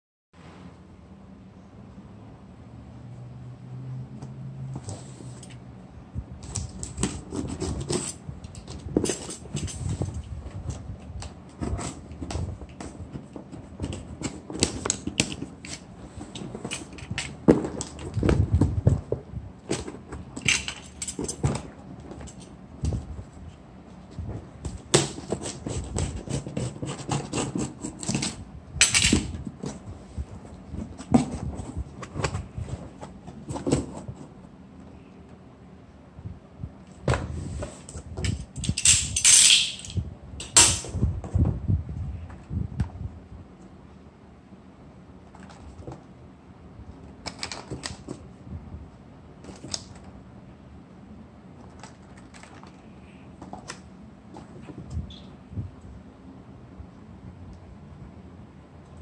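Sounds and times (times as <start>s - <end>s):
cardboard scraping and rustling: 6.4s - 28.5s, 29.2s - 34.5s, 37.0s - 38.4s.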